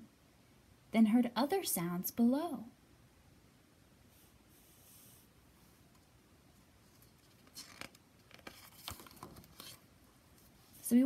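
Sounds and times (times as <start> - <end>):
book page turning: 6.9 - 10.9.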